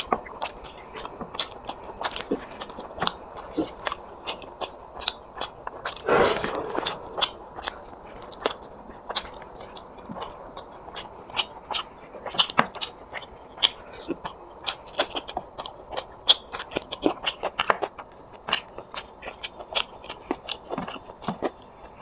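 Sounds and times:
loud crunch: 0:00.0 - 0:10.3
person chewing wetly: 0:00.0 - 0:22.0.

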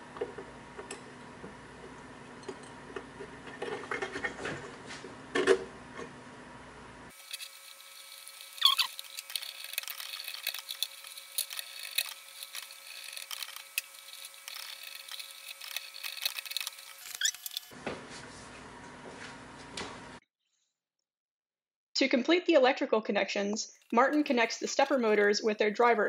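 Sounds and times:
room noise: 0:07.1 - 0:20.2.

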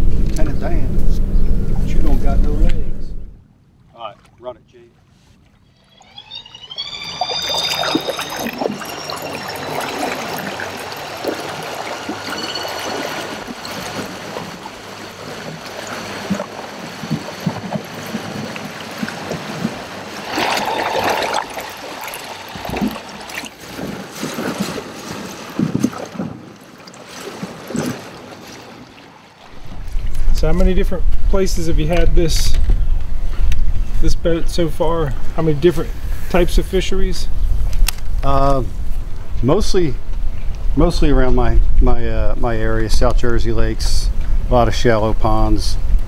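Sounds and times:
water rushing along hull: 0:00.0 - 0:46.0
electric outboard motor whine: 0:05.6 - 0:18.5, 0:19.1 - 0:24.0.

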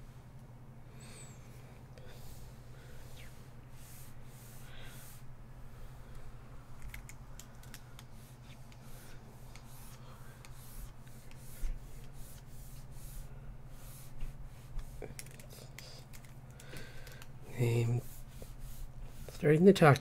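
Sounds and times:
low steady hum: 0:00.0 - 0:20.0
stylus scratching on tablet: 0:08.0 - 0:16.0, 0:17.5 - 0:20.0.

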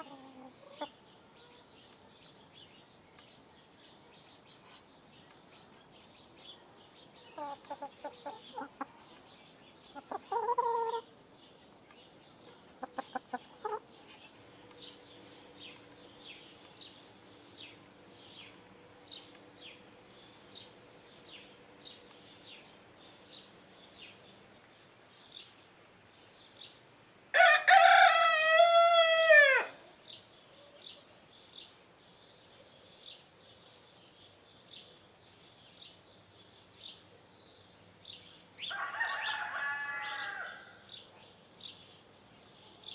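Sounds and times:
hen clucking: 0:00.0 - 0:01.0, 0:07.4 - 0:09.1, 0:09.9 - 0:11.1, 0:12.8 - 0:14.3
rooster crowing: 0:27.4 - 0:29.8, 0:38.7 - 0:40.7.

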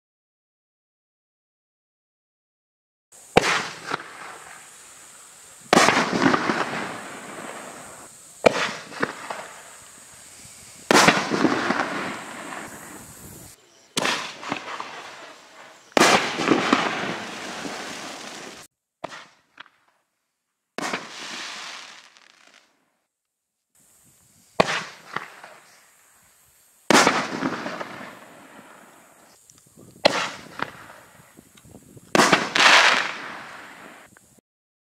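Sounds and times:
firework bursts: 0:03.2 - 0:19.9, 0:20.8 - 0:22.9, 0:23.8 - 0:34.4
crackling firework tail: 0:03.2 - 0:20.1, 0:20.8 - 0:23.0, 0:23.8 - 0:34.4
firework shells launching: 0:03.3 - 0:19.9, 0:20.8 - 0:22.7, 0:24.6 - 0:25.8, 0:26.9 - 0:29.4, 0:30.0 - 0:31.3, 0:32.1 - 0:34.1.

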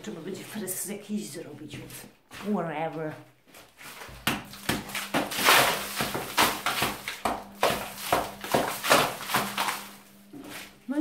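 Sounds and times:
hammer chipping at wall: 0:04.2 - 0:09.8.

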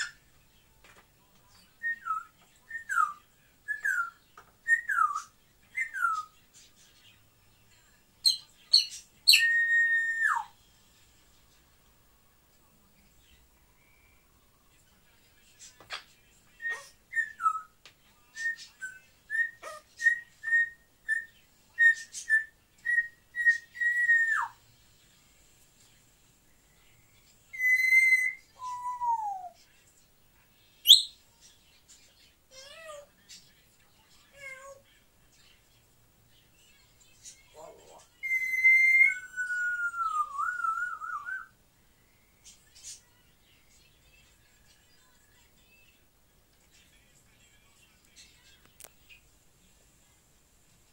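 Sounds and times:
parrot whistling: 0:27.5 - 0:29.5, 0:38.2 - 0:41.5.

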